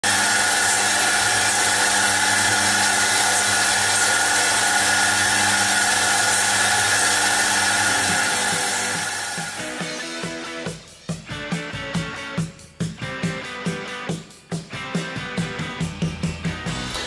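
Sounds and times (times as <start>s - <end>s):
wheel motor hum: 0.0s - 9.6s
grinding wheel on steel: 0.0s - 9.8s.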